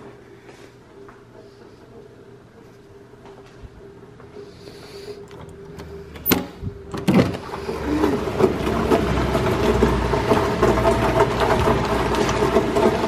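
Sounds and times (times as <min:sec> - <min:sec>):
heavy rain falling: 0:07.7 - 0:13.0.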